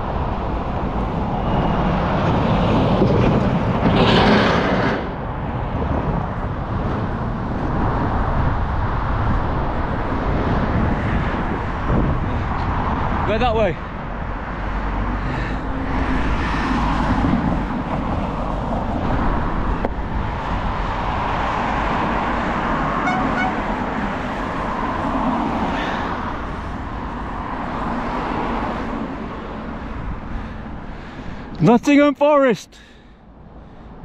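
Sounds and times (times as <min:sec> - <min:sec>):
cars and van driving by: 0:00.0 - 0:34.0.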